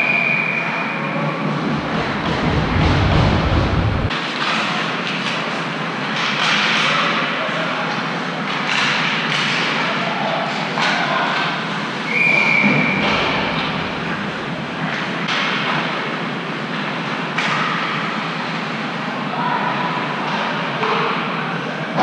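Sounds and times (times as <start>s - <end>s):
crowd noise: 0.0s - 6.1s, 9.7s - 15.3s.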